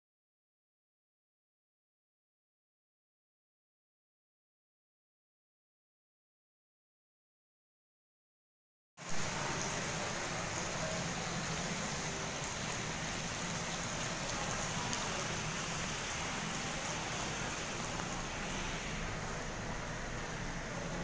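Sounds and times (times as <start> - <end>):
steady rushing water: 9.0 - 21.0.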